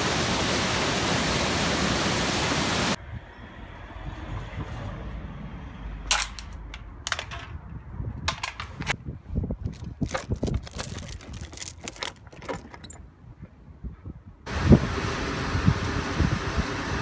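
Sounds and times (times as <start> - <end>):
swing chains clinking: 9.7 - 13.2.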